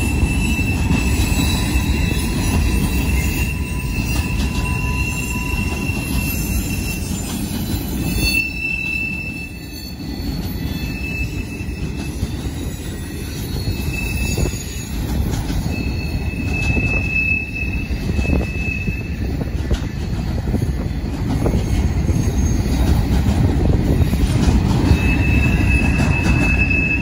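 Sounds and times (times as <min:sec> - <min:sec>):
high wheel squeal: 0:00.0 - 0:27.0
train wheels rumbling on rail: 0:00.0 - 0:27.0.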